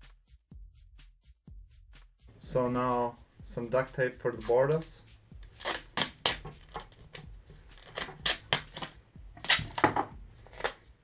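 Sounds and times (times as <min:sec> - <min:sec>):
duct tape ripping: 0:05.4 - 0:07.2, 0:07.8 - 0:10.8.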